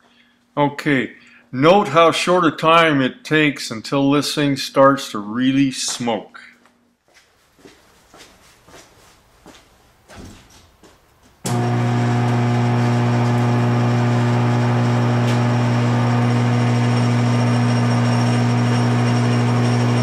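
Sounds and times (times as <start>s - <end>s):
loud electrical motor hum: 11.5s - 20.0s.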